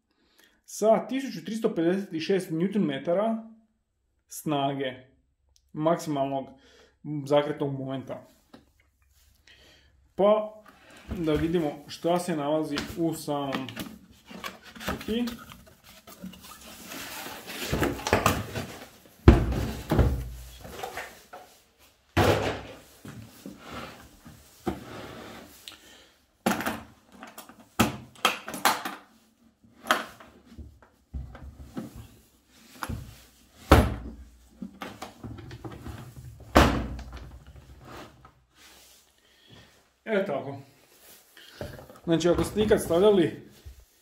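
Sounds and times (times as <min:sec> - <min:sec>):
cardboard packaging rustling: 0:11.0 - 0:21.3
plastic case knocks and thuds: 0:19.2 - 0:20.4.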